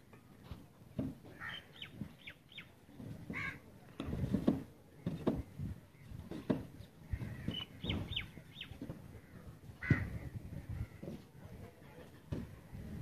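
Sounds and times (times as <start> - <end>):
birds chirping: 1.4 - 3.6, 5.0 - 11.1
dull low thuds: 2.9 - 11.4.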